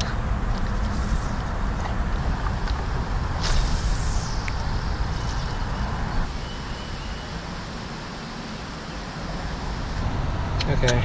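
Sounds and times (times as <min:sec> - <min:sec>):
fishing line hissing off reel: 0:03.4 - 0:05.8.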